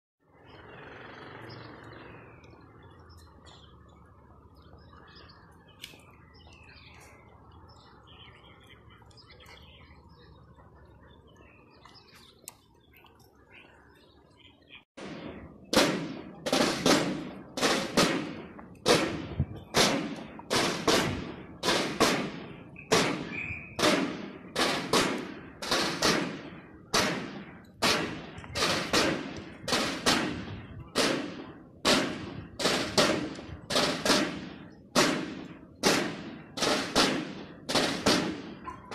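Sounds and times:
bird chirps: 0.4 - 14.9, 22.6 - 23.8
drum corps beating cadence: 15.0 - 38.7.

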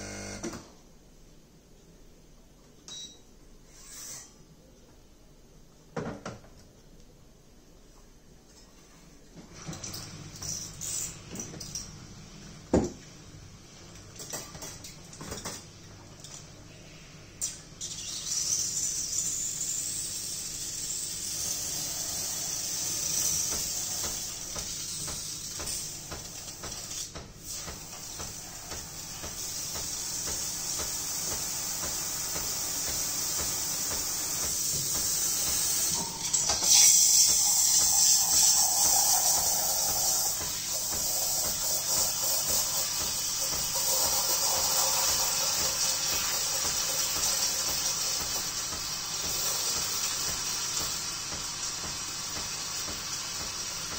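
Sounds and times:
steam wand hissing into milk: 17.8 - 53.9.

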